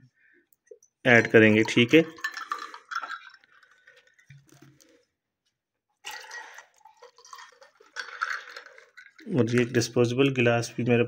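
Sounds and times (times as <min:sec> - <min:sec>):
water pouring onto ice cubes: 0:01.1 - 0:05.0, 0:06.0 - 0:10.4.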